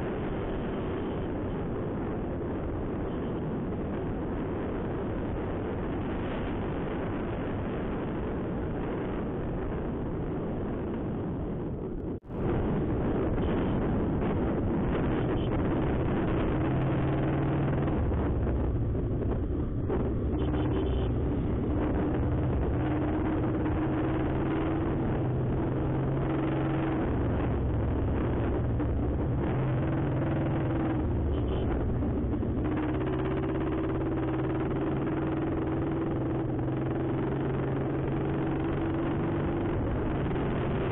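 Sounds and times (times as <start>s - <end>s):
road noise: 0.0s - 40.9s
wind rush: 0.0s - 40.9s
motorcycle engine running: 15.4s - 40.9s.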